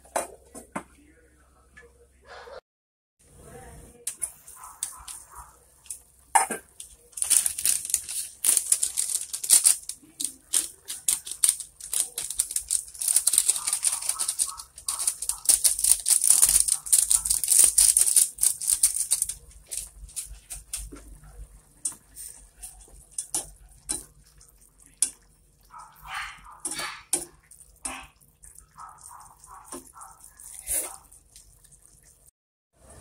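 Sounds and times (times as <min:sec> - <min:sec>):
spatula stirring and knocking on pot: 0:19.6 - 0:32.2
squid sizzling in a pot: 0:21.6 - 0:32.3.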